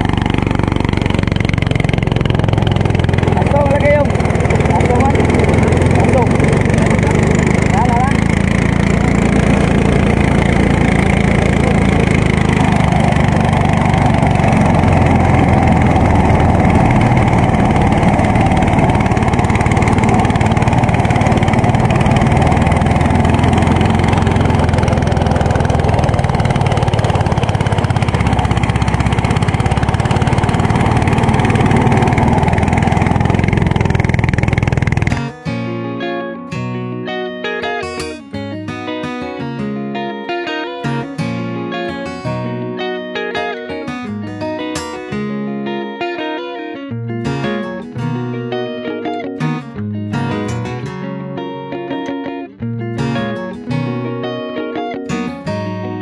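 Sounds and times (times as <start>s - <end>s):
rice thresher engine running: 0.0s - 35.4s
guitar music: 0.0s - 56.0s.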